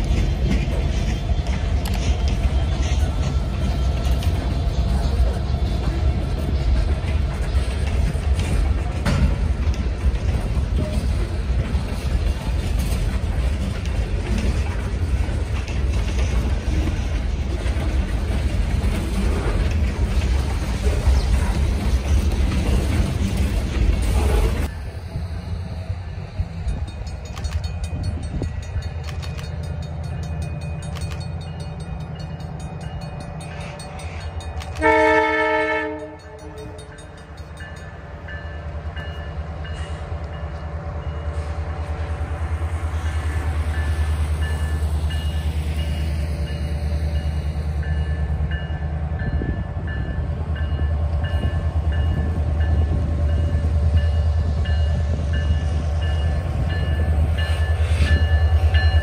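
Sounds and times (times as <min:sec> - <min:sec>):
diesel locomotive engines rumbling: 0:00.0 - 0:59.0
locomotive horn blast: 0:34.8 - 0:36.8.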